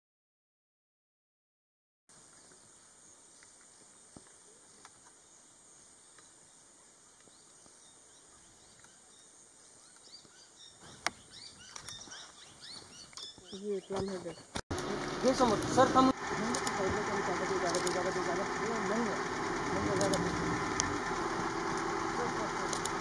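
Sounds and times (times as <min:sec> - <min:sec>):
insect drone: 0:02.1 - 0:12.7, 0:14.8 - 0:23.0
bird chirps: 0:06.1 - 0:14.6
sharp click: 0:16.5 - 0:16.8, 0:17.7 - 0:18.0, 0:22.7 - 0:23.0.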